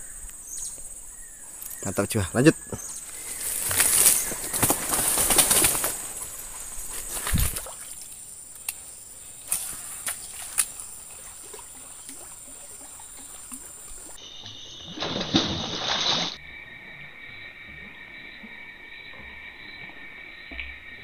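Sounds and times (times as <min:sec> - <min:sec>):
insects droning: 0:00.0 - 0:21.0
splash on water: 0:09.5 - 0:16.4.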